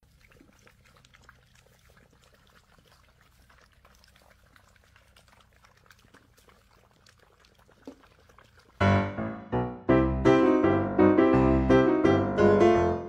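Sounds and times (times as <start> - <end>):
puppies lapping water: 0.0 - 9.2.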